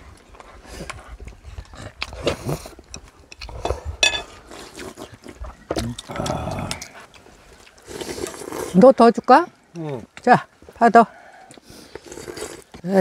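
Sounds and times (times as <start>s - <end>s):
people slurping noodles: 0.6s - 8.8s, 11.2s - 13.0s.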